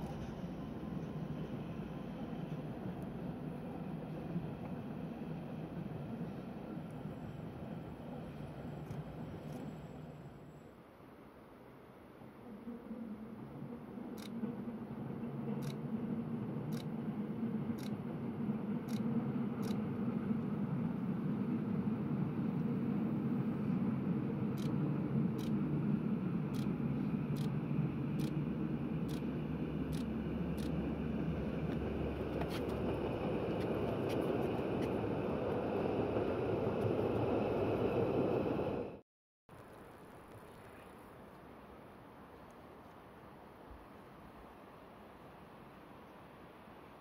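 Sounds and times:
train running: 0.0 - 10.9, 12.4 - 39.0
faint regular clicks: 14.1 - 14.4, 15.6 - 15.8, 18.8 - 19.8, 29.0 - 29.3, 29.9 - 30.8.

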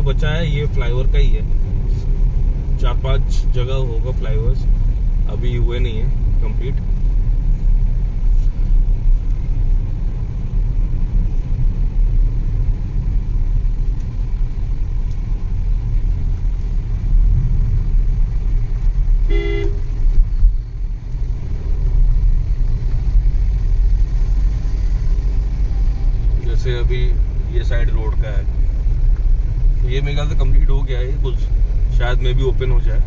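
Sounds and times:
car engine and road rumble: 0.0 - 33.0
vehicle horn honk: 19.2 - 19.9.

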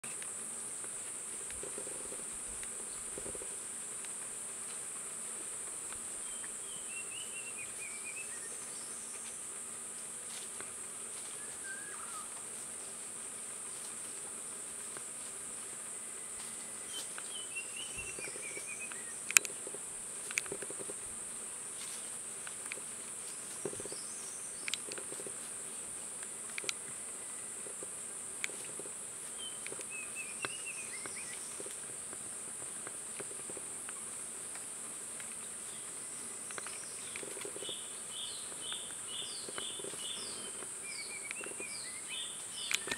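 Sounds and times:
rustling dry leaf litter: 7.4 - 34.6
high-pitched insect drone: 11.1 - 13.0, 15.6 - 21.1, 26.5 - 32.0, 35.2 - 42.9
distant birdsong: 11.3 - 12.5, 16.1 - 19.7, 29.3 - 31.8, 35.4 - 42.9.

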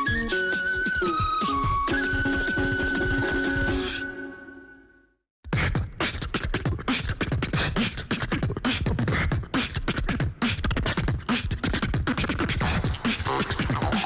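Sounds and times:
person beatboxing into microphone: 5.5 - 14.0.

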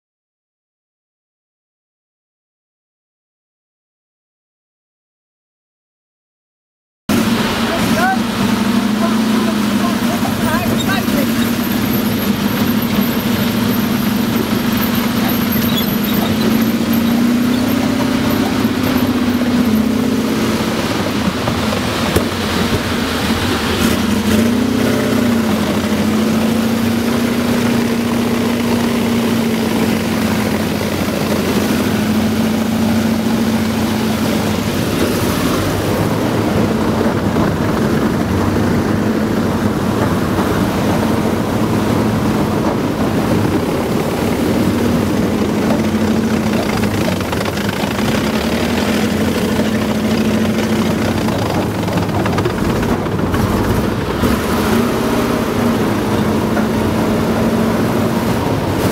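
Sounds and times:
vehicle engine droning: 7.1 - 58.9.

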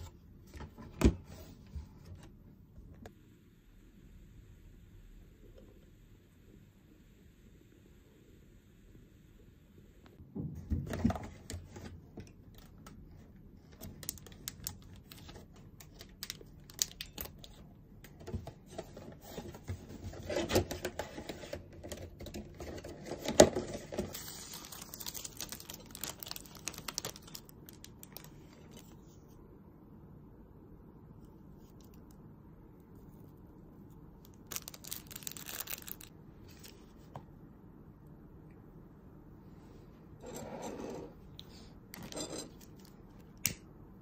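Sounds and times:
papery rustle: 23.0 - 29.0, 34.4 - 36.9.

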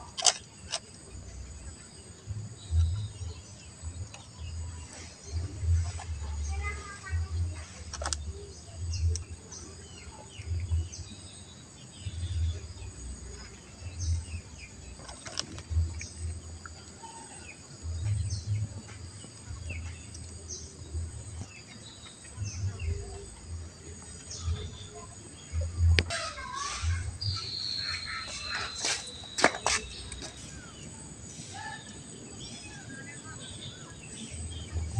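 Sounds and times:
low rumbling bumps: 1.1 - 9.5, 12.0 - 16.8, 17.8 - 27.6
short bird chirps: 26.1 - 30.7.

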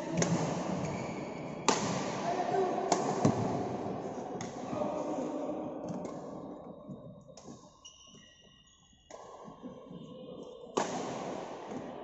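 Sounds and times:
badminton play noise: 0.1 - 12.0
shoe squeaks: 0.8 - 1.7, 6.8 - 10.7
racket striking shuttlecock: 1.7 - 2.2, 2.9 - 3.6, 10.8 - 11.9.

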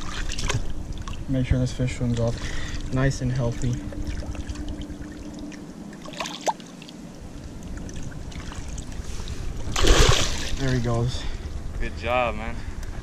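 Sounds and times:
small water splashes: 0.0 - 1.2, 3.6 - 7.0, 7.6 - 9.1, 9.7 - 10.8
water trickling and lapping: 0.0 - 11.5.

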